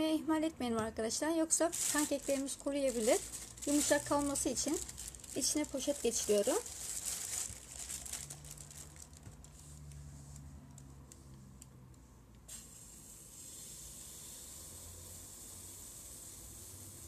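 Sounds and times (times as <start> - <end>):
plastic bag crinkling: 1.5 - 9.6.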